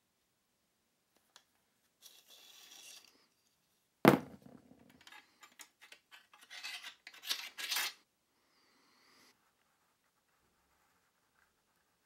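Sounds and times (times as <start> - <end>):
steel crossguard scraping and clicking: 4.9 - 8.0.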